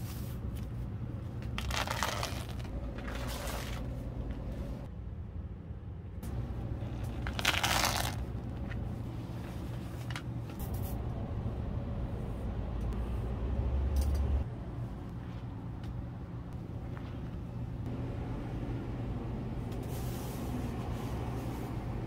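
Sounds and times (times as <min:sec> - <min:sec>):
steady low hum: 0:00.0 - 0:22.0
crinkling rustle: 0:01.5 - 0:03.9, 0:07.0 - 0:08.7.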